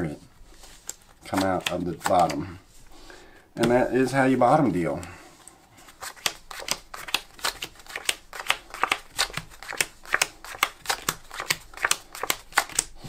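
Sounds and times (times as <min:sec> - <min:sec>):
playing cards snapping: 0:00.8 - 0:02.4, 0:06.0 - 0:12.9.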